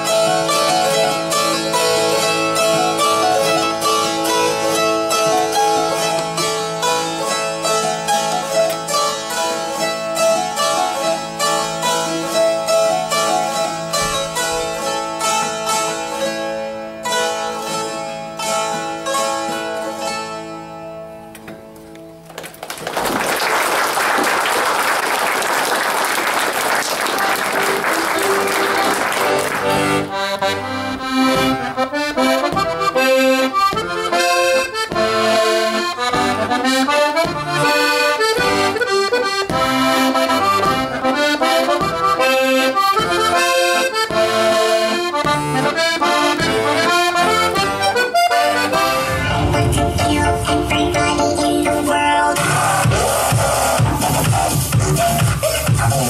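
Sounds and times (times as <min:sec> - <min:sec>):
strummed zithers folk tune: 0:00.0 - 0:22.3, 0:28.0 - 0:49.3
applause: 0:22.3 - 0:30.1.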